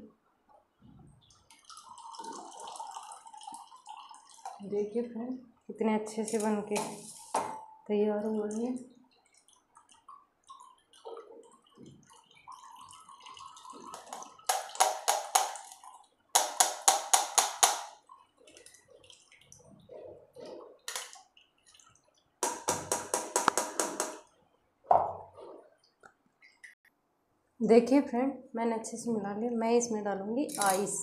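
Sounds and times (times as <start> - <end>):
liquid pouring and dripping: 0.5 - 5.7, 7.1 - 26.8.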